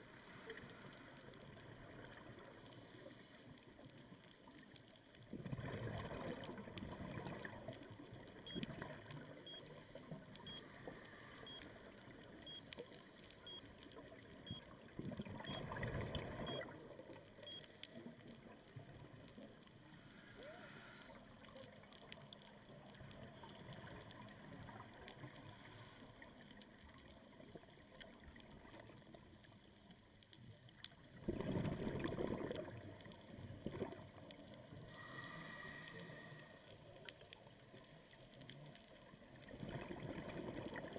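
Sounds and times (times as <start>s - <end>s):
regulator hissing inhalations: 0.0s - 1.5s, 10.3s - 12.4s, 19.8s - 21.2s, 25.2s - 26.1s, 34.8s - 36.8s
faint short beeps: 8.4s - 8.8s, 9.4s - 12.8s, 13.4s - 13.7s, 14.4s - 14.7s, 15.4s - 15.8s, 16.4s - 16.7s, 17.4s - 17.8s
bubbling exhalation: 31.2s - 32.8s.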